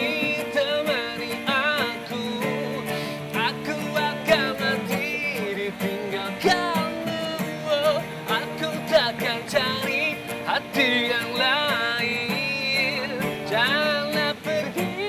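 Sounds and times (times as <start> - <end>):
guitar melody: 0.0 - 15.0
pop band music: 2.1 - 7.6.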